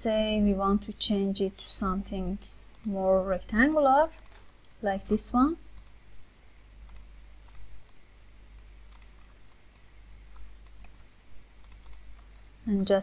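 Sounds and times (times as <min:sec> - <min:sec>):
low steady hum: 0:00.0 - 0:13.0
computer mouse clicking: 0:02.7 - 0:04.8, 0:05.7 - 0:06.0, 0:06.8 - 0:08.0, 0:08.6 - 0:11.0, 0:11.6 - 0:12.5.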